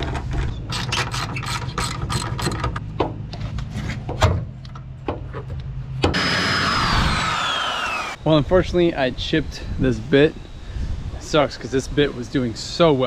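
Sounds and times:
low hum: 0:05.6 - 0:12.3.

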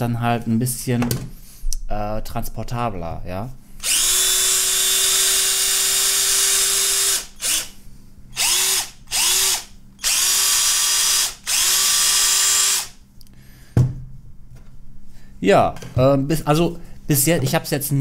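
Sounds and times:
cordless drill whining: 0:03.8 - 0:07.8, 0:08.4 - 0:13.0.

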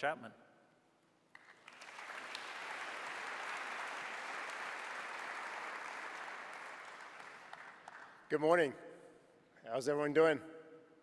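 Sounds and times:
audience applauding: 0:01.3 - 0:08.2.

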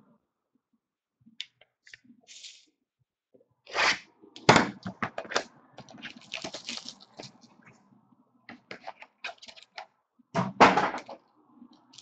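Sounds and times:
card rustle: 0:05.2 - 0:07.4.

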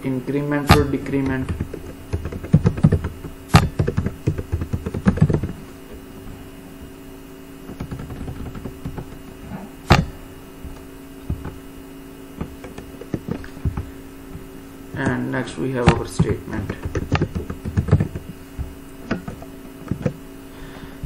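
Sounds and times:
steady hum: 0:00.0 - 0:21.0
computer keyboard typing: 0:00.7 - 0:05.6, 0:07.7 - 0:09.3, 0:15.9 - 0:18.3.

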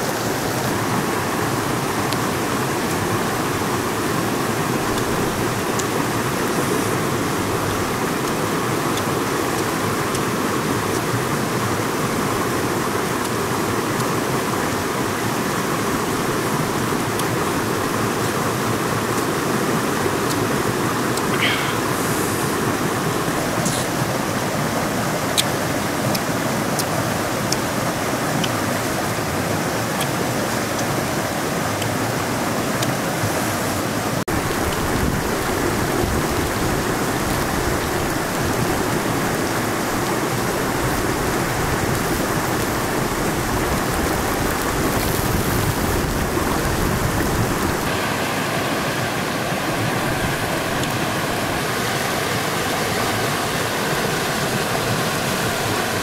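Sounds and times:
river flowing over rocks: 0:00.0 - 0:56.0.

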